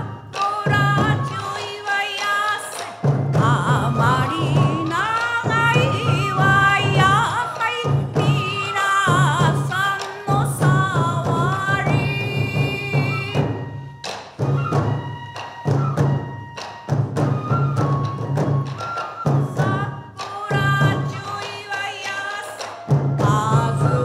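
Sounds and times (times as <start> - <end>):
heavy drum beats: 3.0 - 13.8.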